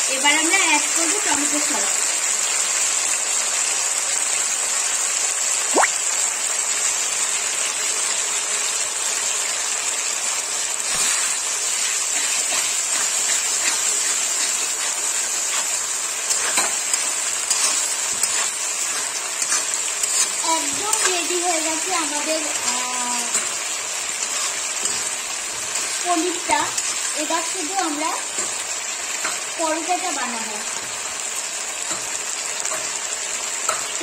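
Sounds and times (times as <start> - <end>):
food sizzling in oil: 0.0 - 34.0
metal spatula scraping pan: 10.9 - 23.6, 24.2 - 26.0.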